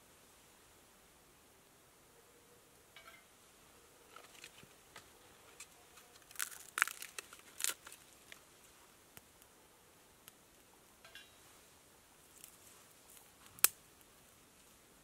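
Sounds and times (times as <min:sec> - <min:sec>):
packet crinkling and tearing: 0:06.0 - 0:08.4.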